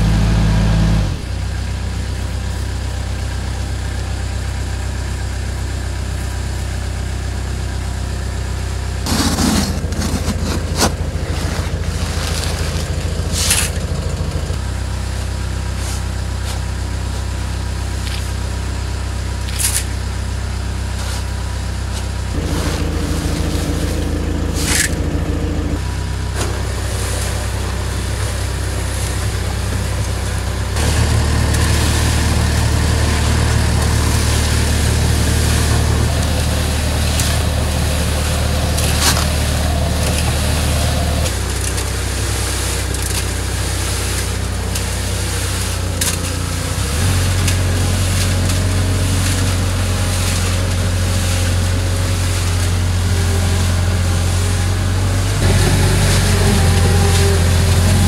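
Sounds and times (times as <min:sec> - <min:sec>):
loader engine idling: 0:00.0 - 0:58.0
shovel scraping and rattling: 0:09.0 - 0:14.6, 0:19.4 - 0:20.0, 0:20.9 - 0:21.3, 0:21.9 - 0:27.9, 0:30.8 - 0:54.0.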